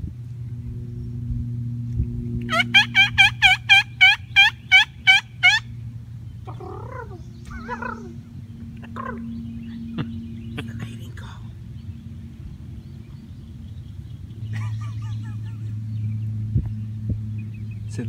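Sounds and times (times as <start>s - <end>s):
steady low hum: 0.0s - 18.0s
soft wavering turkey calls: 2.5s - 5.7s, 6.4s - 11.4s
turkey yelps: 2.5s - 5.7s, 6.5s - 8.2s.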